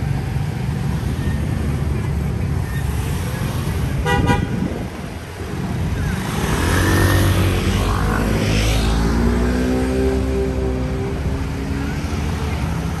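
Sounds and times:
vehicle engine passing by: 6.0s - 13.0s.

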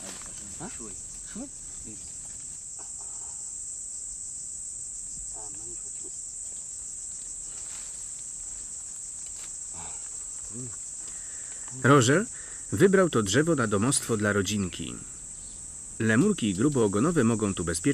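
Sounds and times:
faint quiet voices: 0.0s - 3.5s, 5.3s - 6.2s, 9.7s - 10.8s
high-pitched insect chorus: 0.0s - 17.9s.

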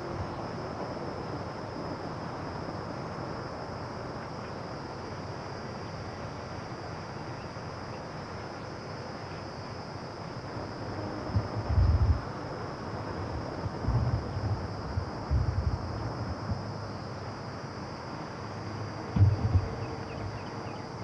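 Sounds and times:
high insect drone: 0.0s - 21.0s
steady rushing noise: 10.4s - 21.0s.

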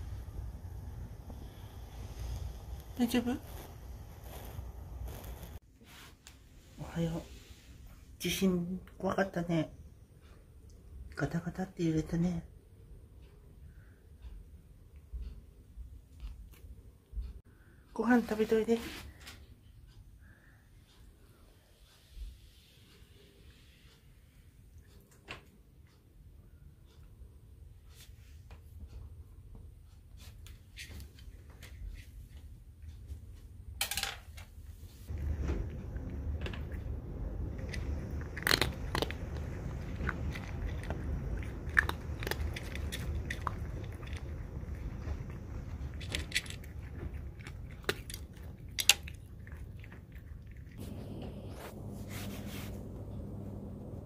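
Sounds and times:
cat crunching dry kibble: 35.1s - 50.9s.

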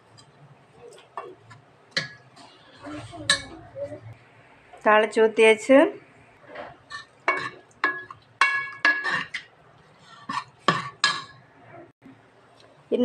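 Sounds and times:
steel ladle clinking on pot: 6.9s - 9.5s.

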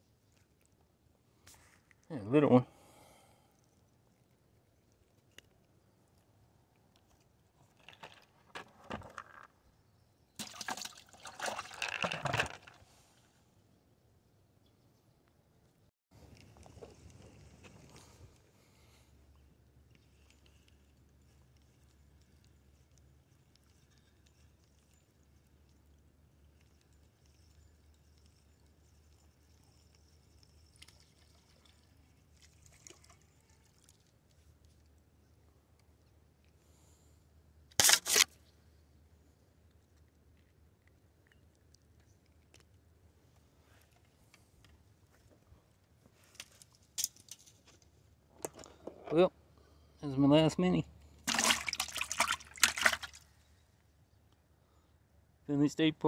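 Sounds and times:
water splashing and sloshing: 10.4s - 13.0s, 30.7s - 35.0s, 51.2s - 53.4s.

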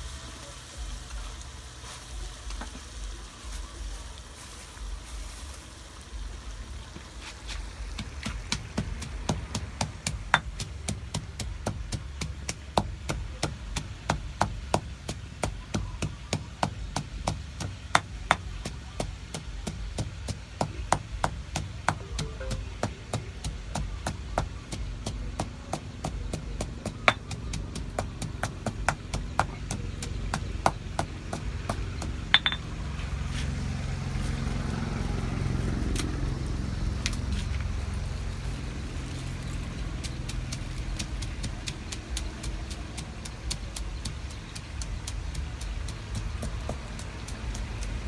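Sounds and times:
pestle pounding in stone mortar: 7.8s - 32.6s, 40.0s - 48.0s.

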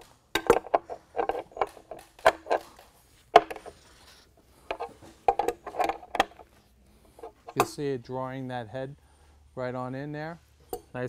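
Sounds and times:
wrench clicking on metal nut: 0.0s - 2.8s.

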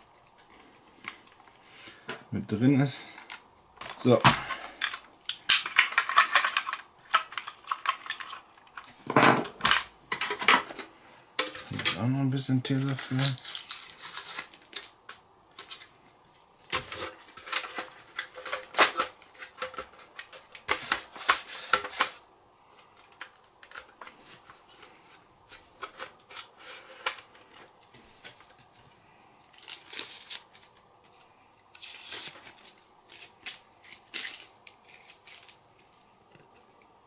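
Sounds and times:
plastic parts clicking: 3.2s - 12.0s
adhesive tape ripping: 12.8s - 14.9s, 29.5s - 30.8s, 31.7s - 35.6s.

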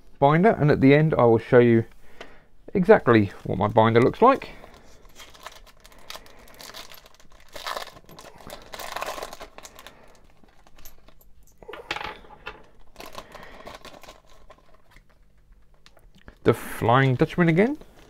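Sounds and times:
foil wrapper crinkling and tearing: 4.2s - 11.1s, 12.6s - 16.3s.

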